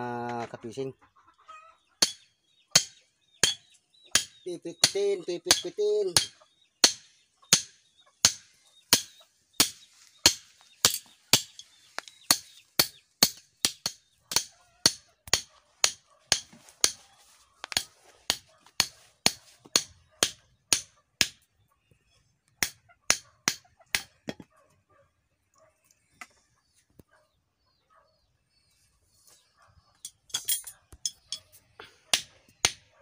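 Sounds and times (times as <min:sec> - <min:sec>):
hammer pounding metal rod: 0:02.0 - 0:02.2, 0:02.8 - 0:11.6, 0:12.3 - 0:17.0.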